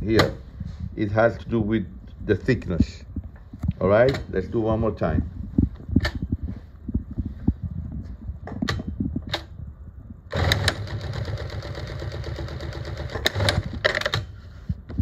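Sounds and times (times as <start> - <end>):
industrial sewing machine stitching: 10.3 - 14.2.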